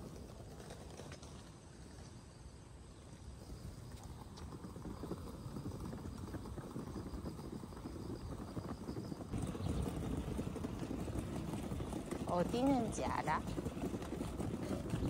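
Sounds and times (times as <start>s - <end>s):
suitcase wheels rolling over bricks: 0.0s - 15.0s.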